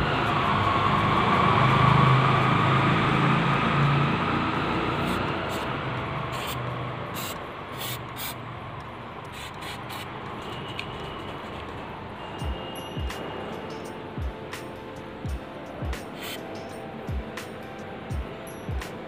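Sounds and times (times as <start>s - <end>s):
aerosol spray hissing: 4.8s - 5.7s, 6.3s - 8.4s, 9.3s - 10.1s, 16.0s - 16.6s.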